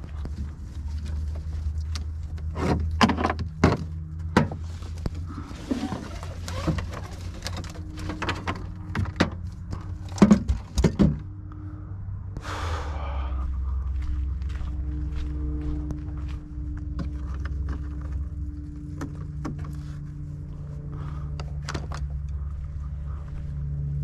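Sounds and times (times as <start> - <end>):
low rumble: 3.8 - 24.0
scraping rustle: 4.6 - 8.9.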